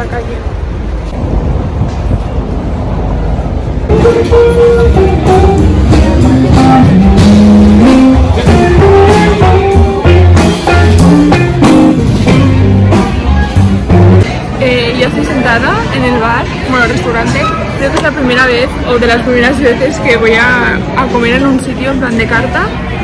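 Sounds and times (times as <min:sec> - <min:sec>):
music with bass and drums: 0:03.9 - 0:14.4.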